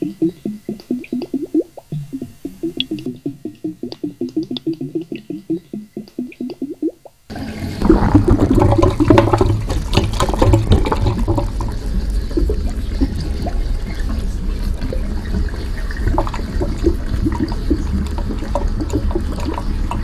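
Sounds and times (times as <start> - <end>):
low plopping pulses: 0.0 - 7.2.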